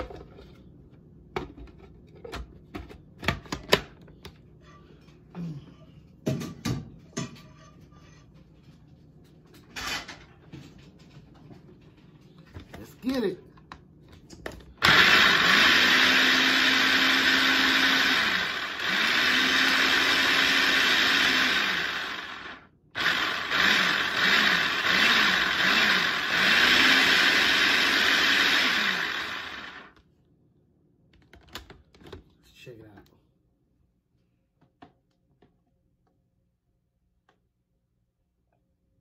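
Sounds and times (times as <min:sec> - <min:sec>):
food processor motor whirring: 0:14.8 - 0:30.0.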